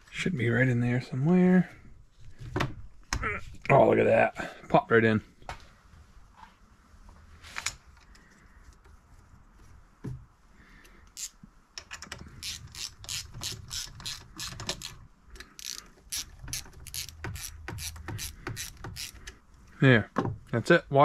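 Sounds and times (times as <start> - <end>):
socket ratchet clicking: 11.1 - 19.4.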